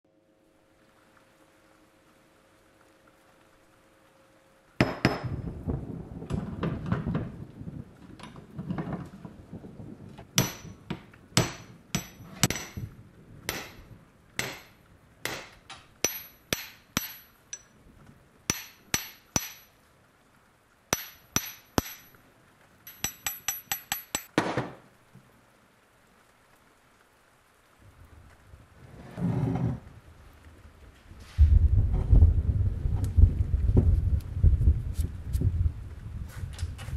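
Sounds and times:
hammer striking metal: 10.4s - 12.8s, 13.5s - 17.7s, 18.5s - 19.7s, 21.0s - 22.1s, 22.9s - 24.3s.

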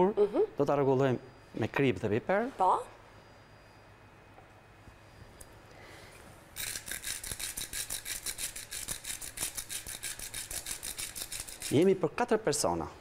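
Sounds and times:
salt grinder grinding: 6.6s - 11.9s.

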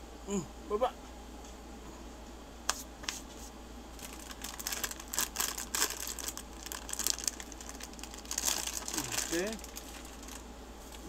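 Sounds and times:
plastic packaging crinkling: 4.0s - 11.0s.

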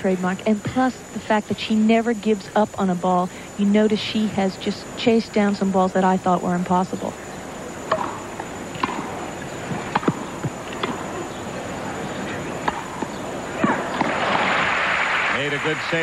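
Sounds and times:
racket striking tennis ball: 7.9s - 11.1s, 12.6s - 14.6s
crowd applause: 14.1s - 16.0s.

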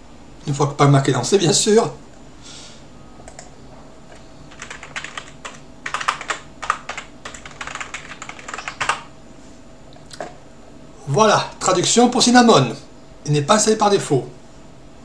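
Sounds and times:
computer keyboard typing: 3.3s - 3.5s, 4.1s - 9.1s.

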